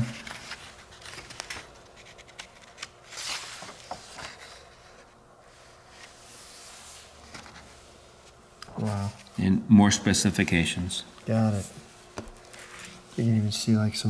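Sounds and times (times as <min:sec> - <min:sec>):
paper pages rustling: 0:00.0 - 0:06.2, 0:07.1 - 0:09.3, 0:12.2 - 0:13.2.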